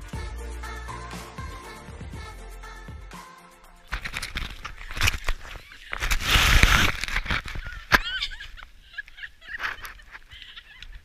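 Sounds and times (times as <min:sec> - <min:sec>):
snow rustling against camera: 0:03.9 - 0:11.0
woman squealing laughter: 0:05.5 - 0:06.5, 0:07.4 - 0:11.0.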